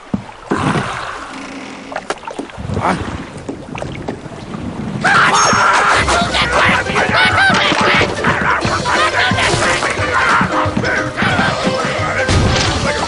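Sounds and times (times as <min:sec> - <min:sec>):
rushing water-like noise: 0:00.0 - 0:13.0
loud music or squawking: 0:05.3 - 0:13.0.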